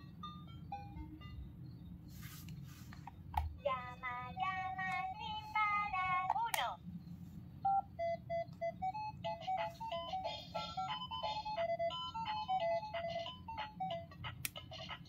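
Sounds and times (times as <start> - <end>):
toy recorded voice singing: 3.6 - 6.8, 7.8 - 15.0
toy click: 6.0 - 6.7, 9.3 - 15.0.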